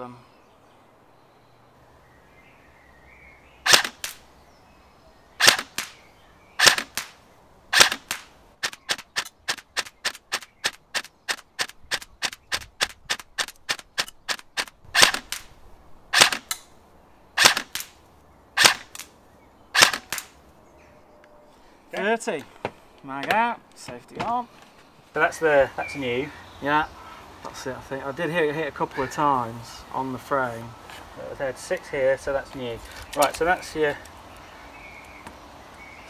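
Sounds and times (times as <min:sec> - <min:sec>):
airsoft rifle shots: 0:03.6 - 0:04.2, 0:05.4 - 0:06.0, 0:06.6 - 0:15.5, 0:16.1 - 0:16.6, 0:17.4 - 0:18.0, 0:18.6 - 0:19.1, 0:19.8 - 0:20.4.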